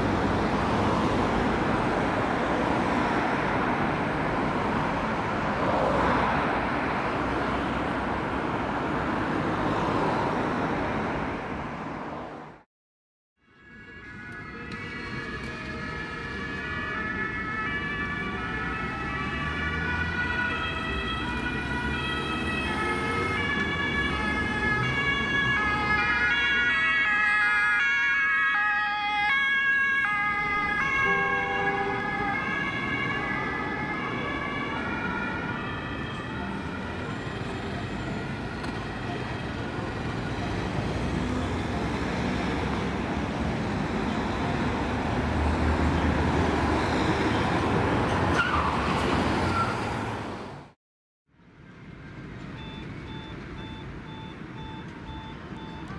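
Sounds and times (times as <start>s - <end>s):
city traffic rumble: 0.0s - 12.7s, 13.4s - 55.9s
two-tone emergency sirens: 13.4s - 50.0s, 51.9s - 55.9s.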